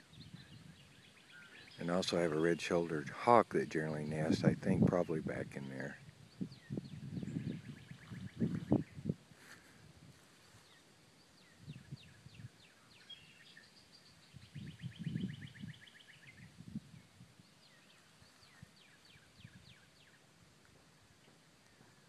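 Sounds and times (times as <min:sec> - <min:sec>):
songbirds singing: 0:00.0 - 0:09.7, 0:10.4 - 0:22.0
soft low rustles: 0:04.2 - 0:10.9.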